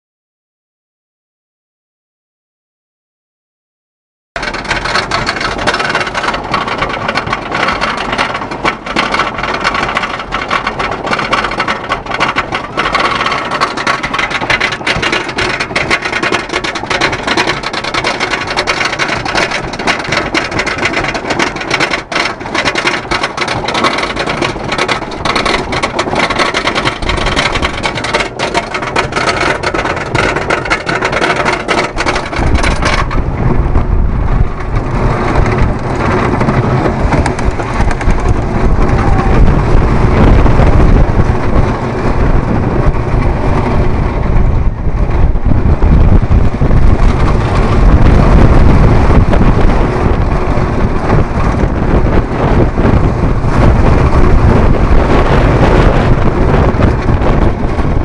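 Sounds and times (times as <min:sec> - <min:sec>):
roller coaster lift chain clatter: 0:04.4 - 0:58.0.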